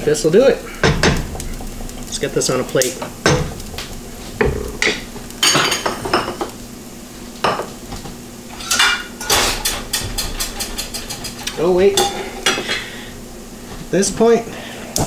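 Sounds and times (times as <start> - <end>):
faint pan sizzle: 0.0 - 15.0
wooden spatula knocking on wok: 0.8 - 2.1, 3.0 - 5.2
dishes clinking: 4.4 - 6.5, 8.5 - 12.9.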